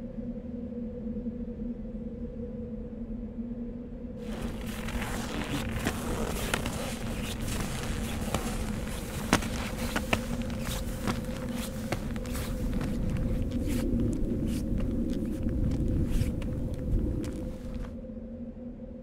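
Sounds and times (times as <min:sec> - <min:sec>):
steady low hum: 0:02.9 - 0:19.0
skis scraping over snow: 0:04.2 - 0:18.0.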